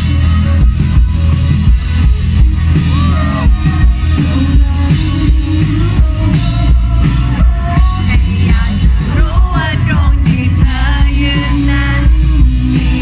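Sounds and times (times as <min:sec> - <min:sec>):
drum kit beating: 0:00.0 - 0:13.0
rock band playing: 0:00.0 - 0:13.0.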